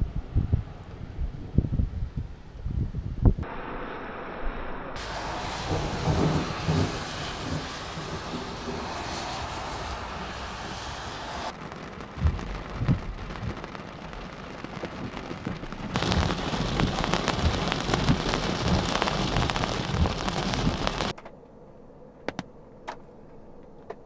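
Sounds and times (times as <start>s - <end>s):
rain falling: 5.0s - 21.1s
raindrops ticking on microphone: 11.4s - 21.1s
low thumps: 11.6s - 21.1s.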